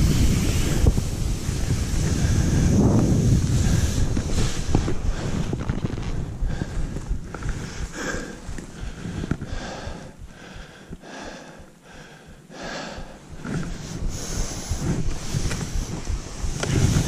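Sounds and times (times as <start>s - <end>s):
skis swishing through snow: 0.0s - 9.3s, 13.2s - 17.0s
wind rumbling on microphone: 0.0s - 12.0s, 12.6s - 17.0s.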